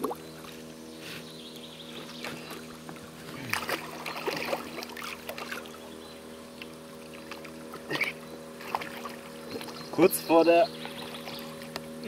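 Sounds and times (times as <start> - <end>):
water splashing: 2.2 - 5.9, 6.6 - 9.9, 10.7 - 11.8.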